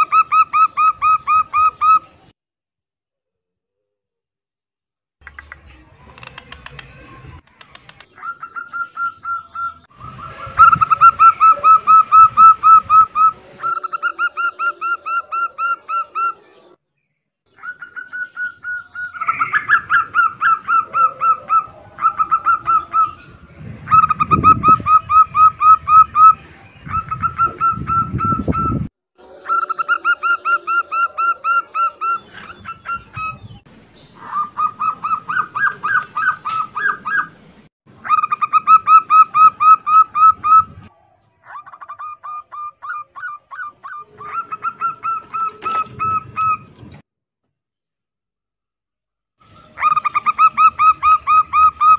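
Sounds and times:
doves cooing: 6.1 - 16.7, 17.5 - 33.6, 34.2 - 37.4, 38.0 - 47.0, 49.6 - 51.9.

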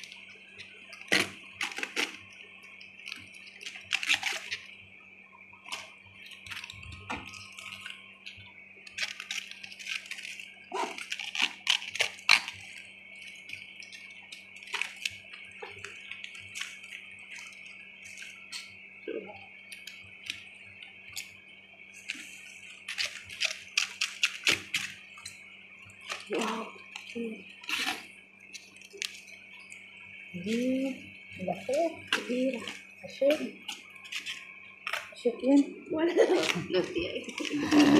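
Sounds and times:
faint hiss and hum: 0.0 - 37.9
wet cabbage leaves squelching: 3.0 - 4.7, 5.6 - 18.5, 36.2 - 37.9.

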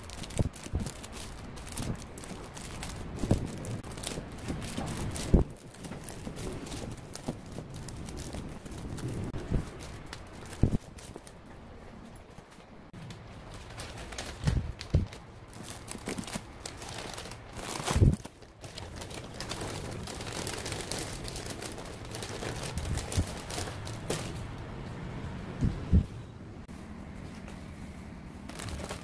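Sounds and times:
plastic wrappers crinkling: 0.0 - 11.5, 13.0 - 24.4, 28.4 - 29.0.

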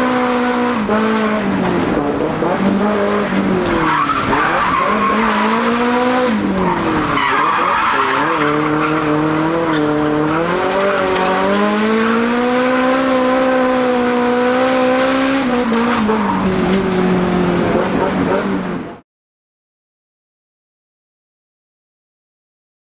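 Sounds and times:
car engine revving: 0.0 - 19.0
tyres screeching: 3.6 - 11.3.

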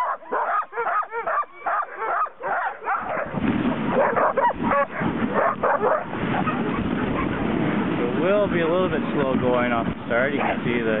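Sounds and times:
sled dogs barking and yipping: 0.0 - 9.0, 10.2 - 10.8
sled rushing over snow: 2.9 - 11.0.

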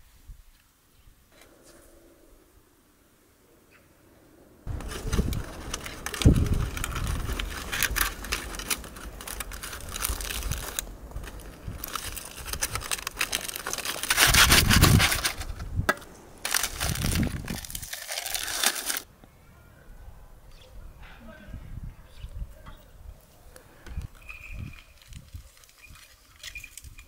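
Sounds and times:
aluminium foil crinkling: 4.7 - 19.1, 24.0 - 27.0.

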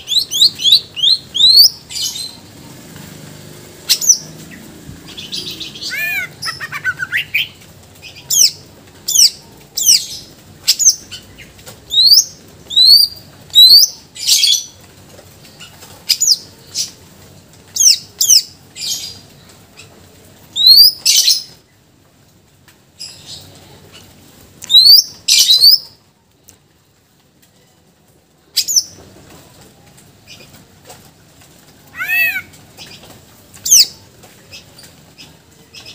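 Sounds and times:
bird singing whistled notes: 0.0 - 1.8.

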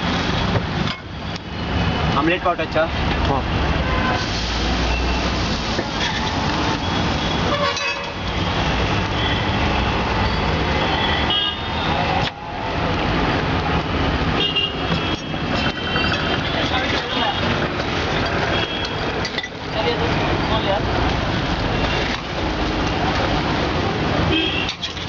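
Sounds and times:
vehicle engines running: 4.3 - 25.0
car horns tooting: 7.0 - 9.6, 14.4 - 17.6, 18.3 - 19.1, 24.3 - 25.0.

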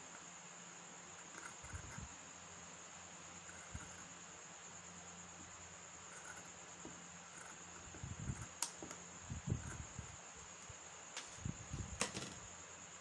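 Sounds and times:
steady high hiss: 0.0 - 13.0.

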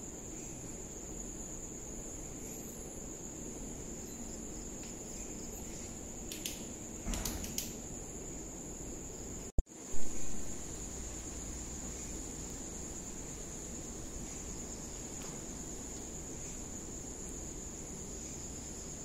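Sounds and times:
crickets chirring: 0.0 - 19.0
faint clicks: 6.3 - 7.8.

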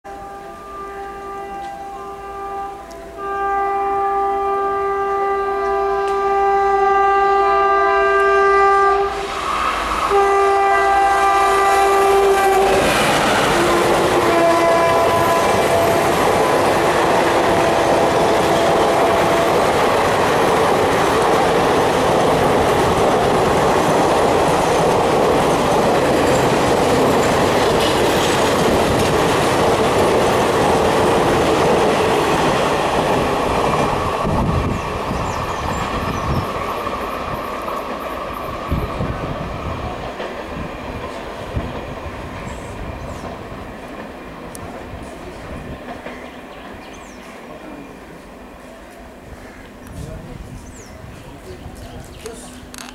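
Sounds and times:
locomotive horn blasts: 0.1 - 9.2, 10.1 - 19.6
train coaches rushing past: 4.6 - 52.9.

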